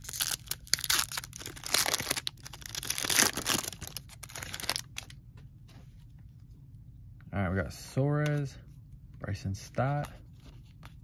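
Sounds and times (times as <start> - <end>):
foil wrapper tearing and crinkling: 0.0 - 5.1.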